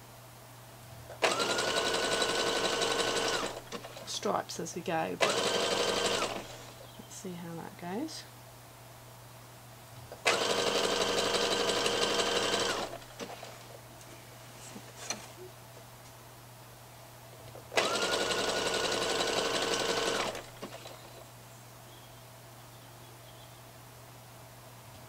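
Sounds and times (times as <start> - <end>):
sewing machine stitching: 1.2 - 4.1, 5.2 - 6.7, 10.2 - 13.6, 17.7 - 21.2.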